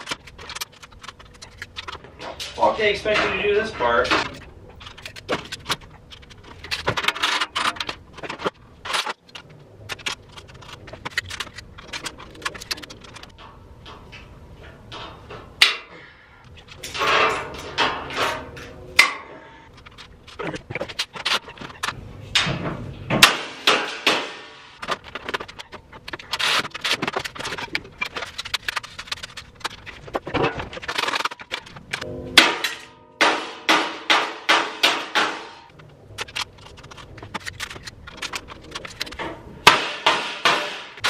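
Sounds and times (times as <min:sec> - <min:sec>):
metal parts clanking and knocking: 0:00.0 - 0:41.0.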